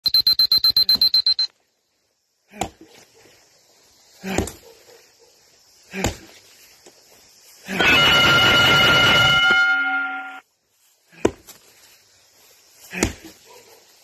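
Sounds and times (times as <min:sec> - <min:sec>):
high electronic beeps: 0:00.0 - 0:01.5
axe chopping wood: 0:02.5 - 0:02.8, 0:04.2 - 0:04.6, 0:05.9 - 0:06.3, 0:11.1 - 0:11.6, 0:12.9 - 0:13.4.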